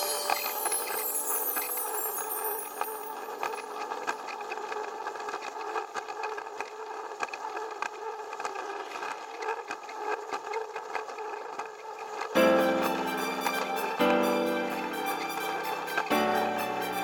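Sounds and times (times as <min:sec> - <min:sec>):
toy train motor whirring: 0:00.2 - 0:12.4.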